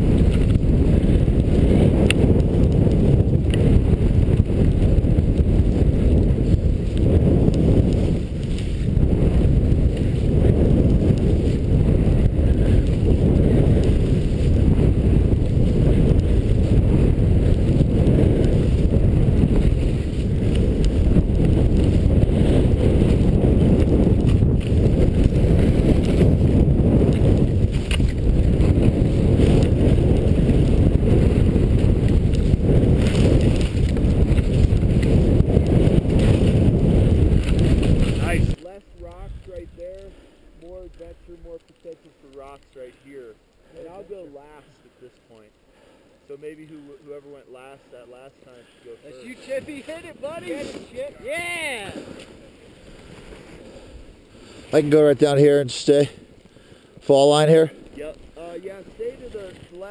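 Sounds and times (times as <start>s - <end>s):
wind buffeting microphone: 0.0s - 44.2s, 49.0s - 59.9s
skis hissing through snow: 6.0s - 10.6s, 49.0s - 56.0s.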